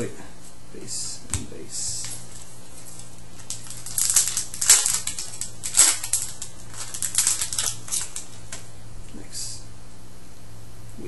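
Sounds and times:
foil wrapper crinkling: 2.0 - 8.7.

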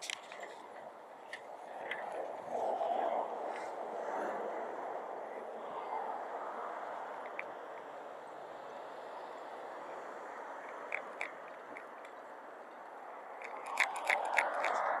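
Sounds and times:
outdoor town ambience: 0.0 - 15.0
sharp clicks: 10.7 - 12.2, 13.4 - 15.0.

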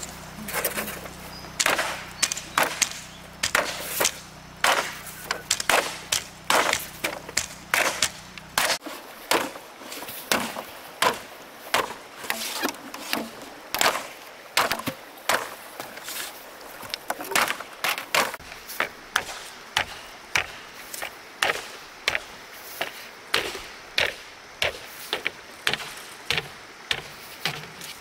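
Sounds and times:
chopping blows on bamboo: 1.5 - 9.6, 10.3 - 15.6, 17.2 - 27.8.

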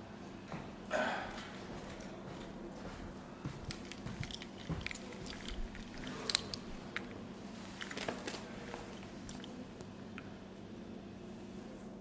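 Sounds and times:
low room hum: 0.0 - 12.0
clicks taps and rustles: 3.6 - 10.3.

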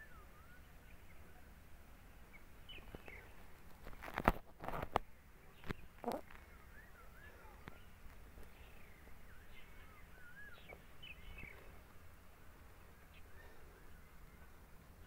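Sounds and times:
low background rumble: 0.0 - 15.0
bird song whistling: 8.7 - 11.6.

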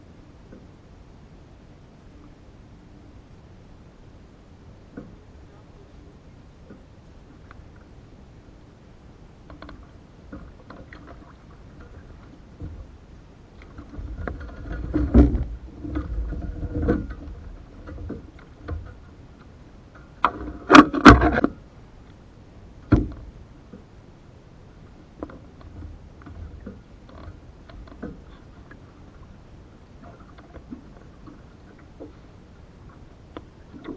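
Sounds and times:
water sloshing: 9.4 - 21.6, 25.1 - 33.9
canoe hull knocking and rubbing: 13.7 - 19.1.

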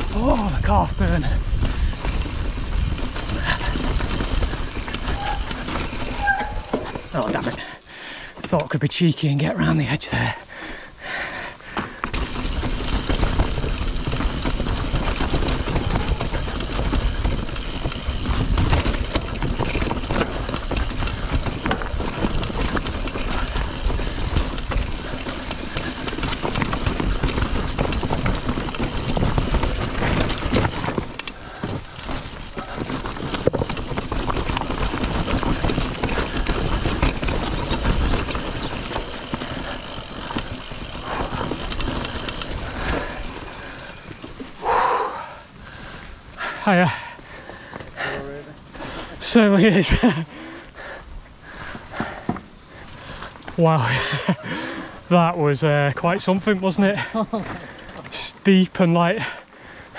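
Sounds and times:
wind buffeting microphone: 0.0 - 6.7
bike clattering over rocks: 0.0 - 7.6, 11.7 - 44.6, 51.8 - 54.5, 56.8 - 58.3
tyres crunching over loose stones: 0.0 - 10.4, 11.7 - 44.7, 51.6 - 59.4.

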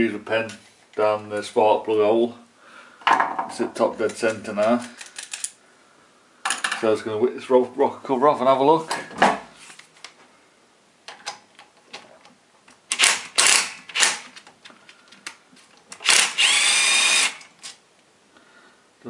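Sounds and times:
power drill whine: 13.0 - 14.2, 16.0 - 17.5.

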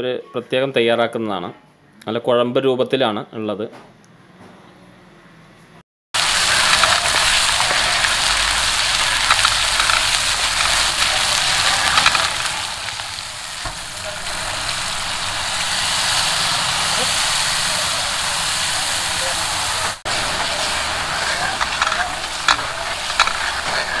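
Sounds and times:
food sizzling in hot oil: 6.2 - 24.0.

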